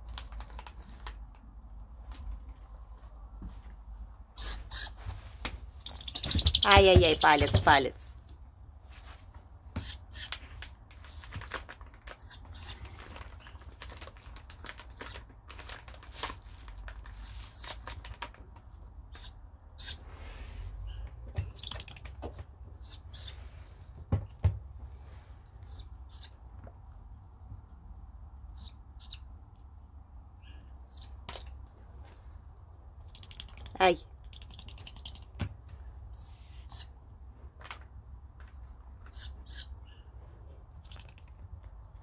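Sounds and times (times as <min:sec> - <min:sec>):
owl chicks begging calls: 0:04.3 - 0:05.0, 0:05.8 - 0:08.0, 0:09.7 - 0:10.4, 0:12.1 - 0:13.6, 0:19.1 - 0:20.1, 0:20.8 - 0:23.5, 0:25.6 - 0:26.4, 0:27.8 - 0:29.3, 0:30.3 - 0:31.6, 0:32.9 - 0:35.4, 0:36.0 - 0:37.0, 0:39.1 - 0:40.1, 0:40.7 - 0:41.2.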